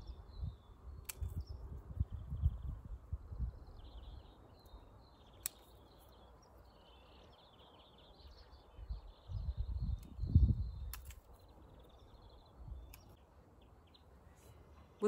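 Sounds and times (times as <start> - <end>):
small birds twittering: 0.0 - 15.0
sharp click: 10.8 - 11.3.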